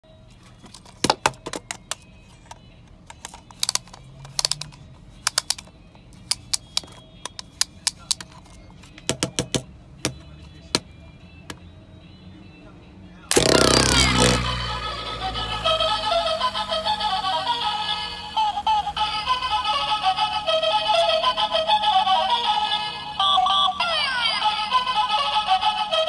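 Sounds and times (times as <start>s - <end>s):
plastic toy clicks and taps: 0.8s - 10.8s.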